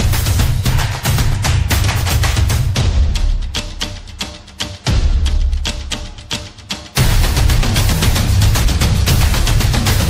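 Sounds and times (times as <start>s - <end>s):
music with quick percussive beat: 0.0s - 10.0s
heavy bass line: 7.0s - 10.0s.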